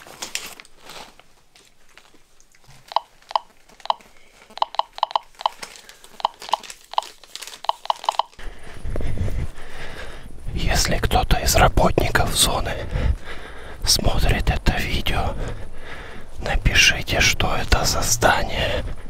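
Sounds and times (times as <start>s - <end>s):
dosimeter chirping beeps: 2.9s - 4.0s, 4.6s - 5.6s, 6.2s - 8.4s.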